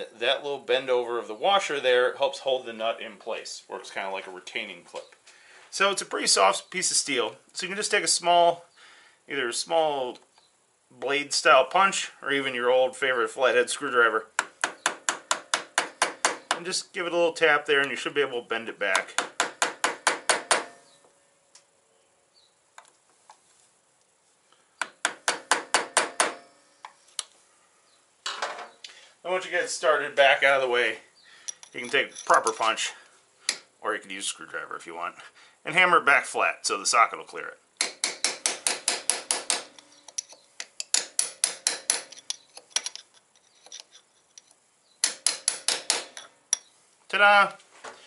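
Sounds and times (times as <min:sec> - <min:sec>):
hammer tapping steel punch: 0:14.4 - 0:16.7, 0:18.9 - 0:21.0, 0:24.8 - 0:26.6, 0:37.8 - 0:43.0, 0:45.0 - 0:46.7.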